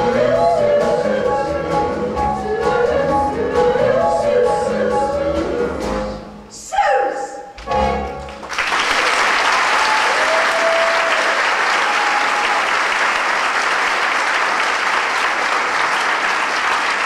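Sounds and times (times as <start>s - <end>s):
audience applauding: 8.2s - 17.0s.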